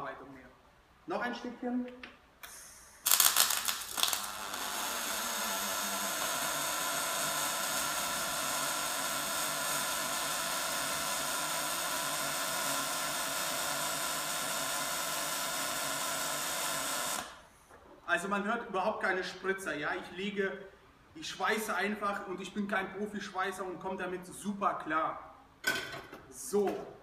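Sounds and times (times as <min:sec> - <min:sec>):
welding arc crackles: 0:02.4 - 0:17.4
welding arc buzzing hiss: 0:02.4 - 0:17.7.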